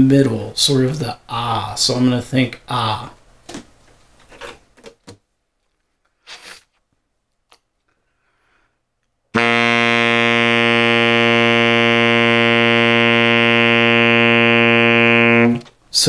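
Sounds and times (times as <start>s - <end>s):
saxophone long held note: 9.4s - 15.6s.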